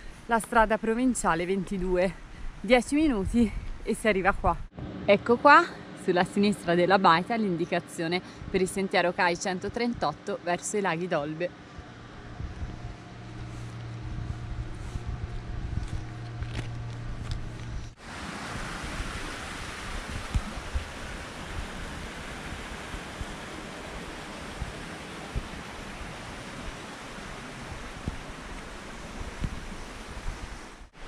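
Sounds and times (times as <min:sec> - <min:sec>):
low steady hum: 0:00.0 - 0:31.0
stream rushing over rocks: 0:17.9 - 0:31.0.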